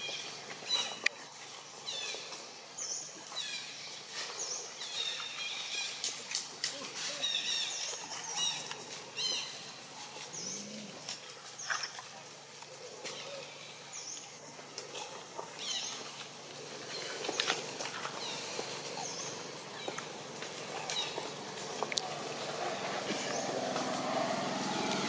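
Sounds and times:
steady outdoor hiss: 0.0 - 25.0
low animal call: 10.0 - 11.2.

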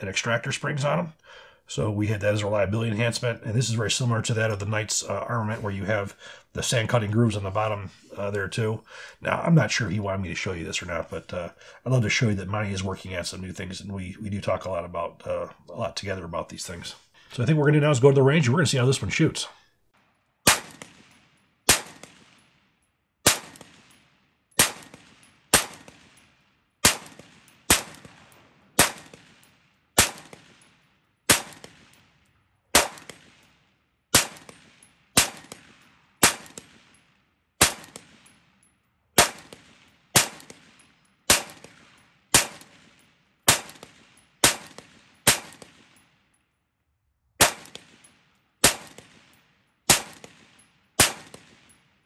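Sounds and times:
rifle shots with ringing tail: 20.4 - 46.3, 47.4 - 52.0.

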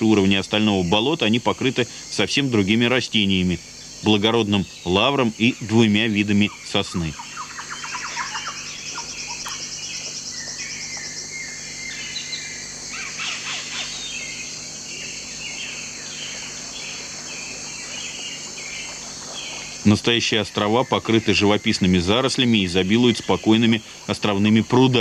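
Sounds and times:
birds chirping: 0.0 - 25.0.

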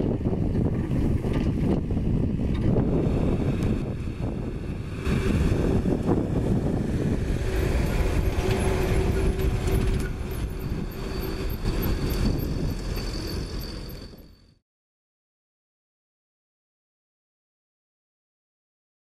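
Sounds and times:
dump trucks driving past: 2.2 - 14.6.

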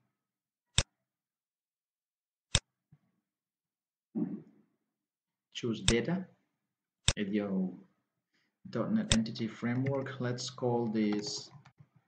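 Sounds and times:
man's voice: 8.8 - 11.6.

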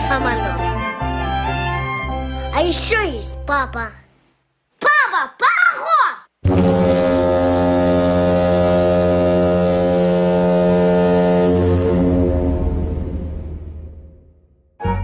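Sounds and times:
long low steady tone: 6.5 - 14.3.

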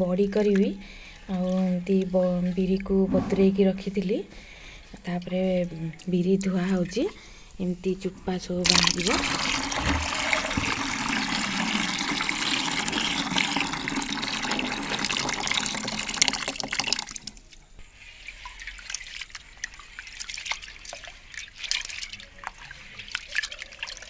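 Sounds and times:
water pouring into a tub: 8.6 - 24.0
hands swishing wet lentils: 17.9 - 24.0.

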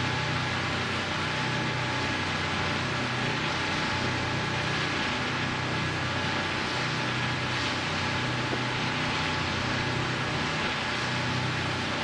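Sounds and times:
low engine drone: 0.0 - 12.0.

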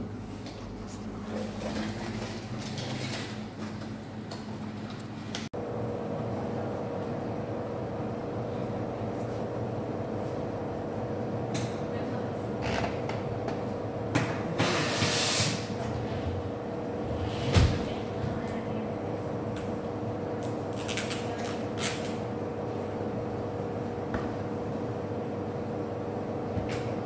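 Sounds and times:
machine hum: 4.1 - 14.6.

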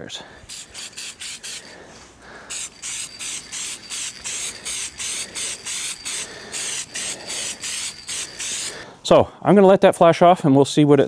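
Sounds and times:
spray can hissing in short bursts: 0.5 - 1.8, 2.5 - 8.8.

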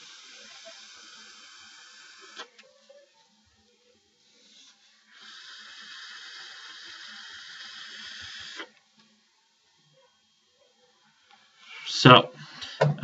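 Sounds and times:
hiss of air through coils: 0.0 - 2.6, 4.2 - 8.8.

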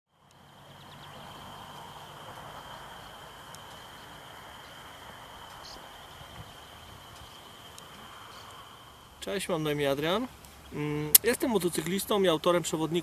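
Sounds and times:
insects trilling: 0.1 - 13.0
bird chirps: 0.2 - 8.7.

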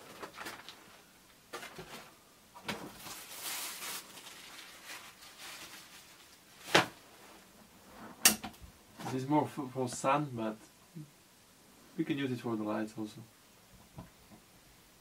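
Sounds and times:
fabric rustling: 2.9 - 8.2.

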